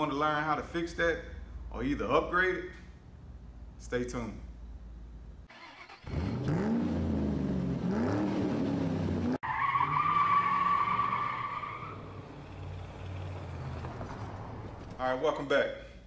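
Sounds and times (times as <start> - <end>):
car engine revving: 5.6 - 15.0
tyre screech: 9.4 - 12.2.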